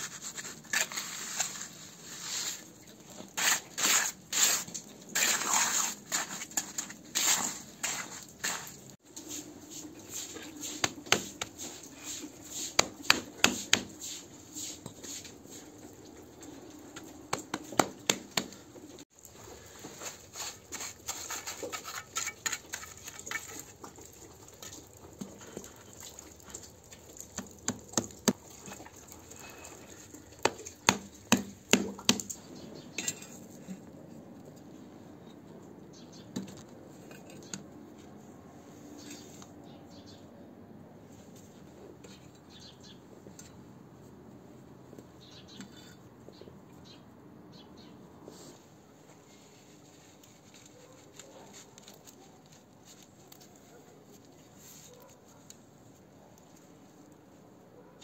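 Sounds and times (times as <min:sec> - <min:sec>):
trowel scraping and tapping: 0:10.1 - 0:15.3, 0:19.8 - 0:24.8.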